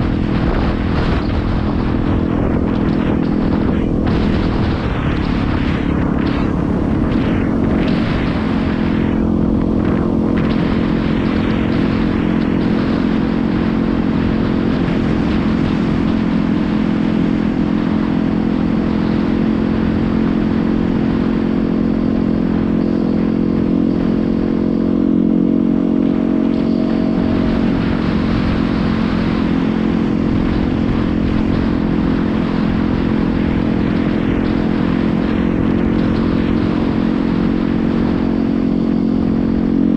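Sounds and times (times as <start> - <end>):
motorcycle engine cruising: 0.0 - 39.9
wind and road noise: 0.0 - 39.9.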